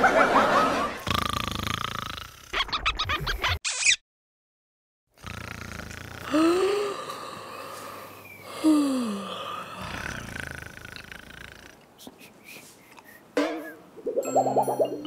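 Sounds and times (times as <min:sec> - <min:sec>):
comic snoring: 0:01.0 - 0:02.8, 0:05.1 - 0:11.9.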